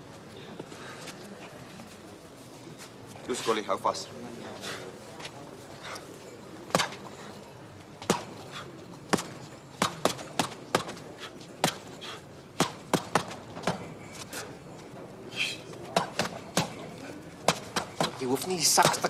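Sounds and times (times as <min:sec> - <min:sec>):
boxing glove punches slapping: 0:08.0 - 0:08.4, 0:09.1 - 0:11.0, 0:11.6 - 0:11.9, 0:12.6 - 0:13.8, 0:17.5 - 0:18.2.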